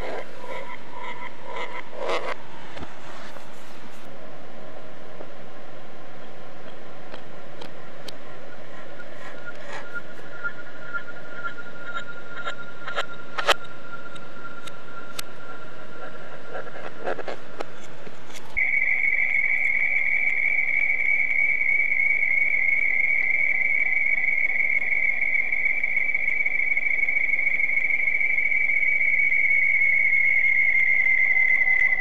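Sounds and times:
high-pitched electronic tone: 0:00.0 - 0:02.4, 0:08.5 - 0:17.2, 0:18.6 - 0:32.0
crackling clicks: 0:06.6 - 0:15.3.

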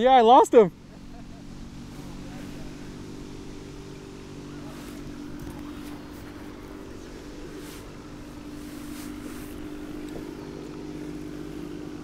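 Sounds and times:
water noise: 0:00.0 - 0:12.0
motor drone: 0:00.6 - 0:12.0
brief hisses: 0:07.5 - 0:08.0.

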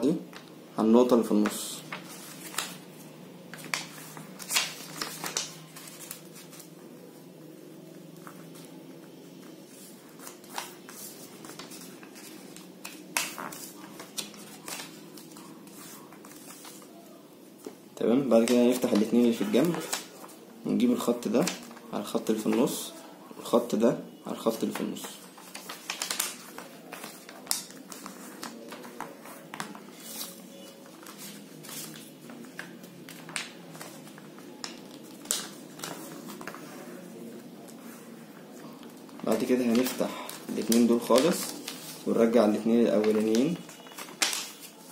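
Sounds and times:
paper rustling and crackling: 0:01.4 - 0:06.8, 0:09.4 - 0:17.0, 0:24.6 - 0:44.9.

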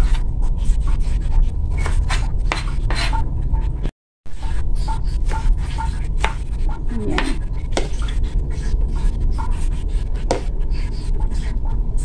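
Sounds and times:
low background hum: 0:00.0 - 0:12.0
knife chopping on plastic board: 0:01.8 - 0:03.2, 0:04.4 - 0:11.5.

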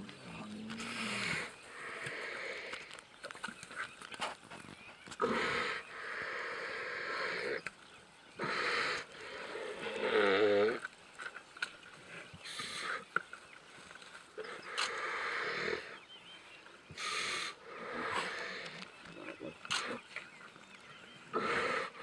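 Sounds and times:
lions growling and snarling: 0:00.0 - 0:03.0, 0:05.1 - 0:07.6, 0:08.3 - 0:10.9, 0:14.3 - 0:16.2, 0:16.9 - 0:22.0.

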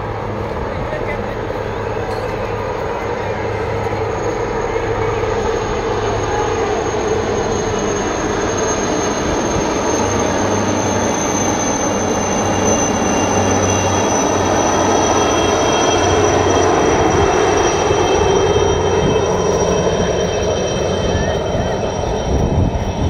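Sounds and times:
helicopters flying over: 0:00.0 - 0:23.0
high whine: 0:00.0 - 0:23.0.

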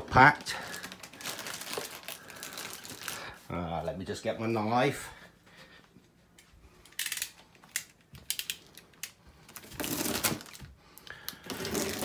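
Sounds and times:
plastic wrapping crinkling: 0:00.0 - 0:03.5, 0:07.0 - 0:12.0.

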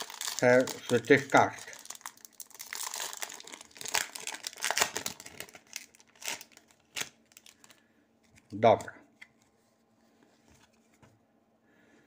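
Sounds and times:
wrapper crinkling being torn: 0:00.0 - 0:07.8.

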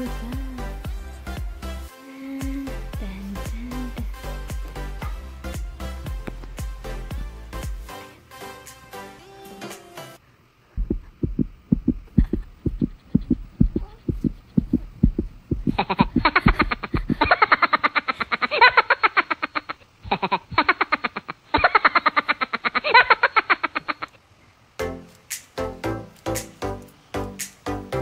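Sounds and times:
fast pulsing music: 0:00.0 - 0:07.9
heartbeat thumps: 0:02.5 - 0:07.4, 0:10.8 - 0:17.3.

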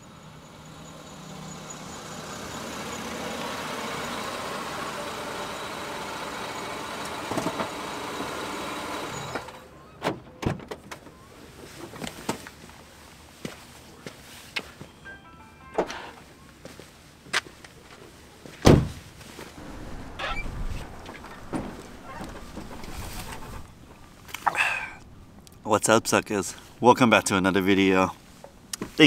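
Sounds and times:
footsteps on pavement: 0:13.4 - 0:14.9, 0:16.6 - 0:18.6
car engine running: 0:19.6 - 0:25.2.

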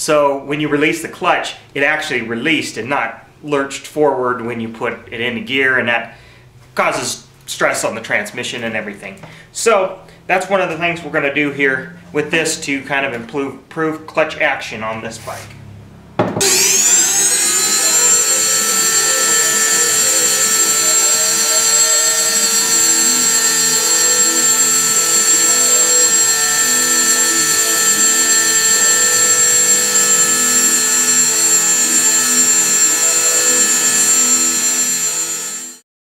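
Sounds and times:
rotary tool grinding metal: 0:16.4 - 0:35.8.

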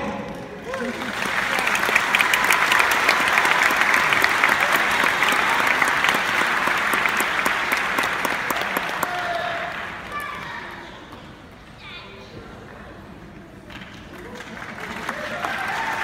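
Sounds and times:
audience applauding: 0:00.6 - 0:10.7, 0:13.7 - 0:16.0.

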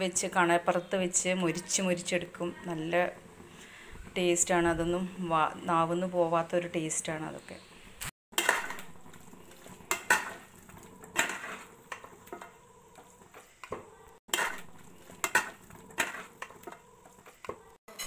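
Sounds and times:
metal spatula scraping a pan: 0:08.4 - 0:13.7, 0:14.3 - 0:18.0.

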